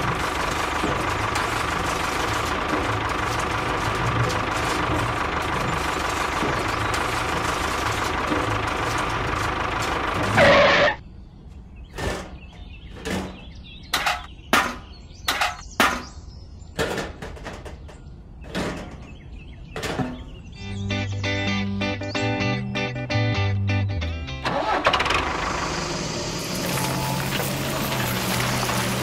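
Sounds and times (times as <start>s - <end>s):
sharp knocks: 12.0s - 16.2s.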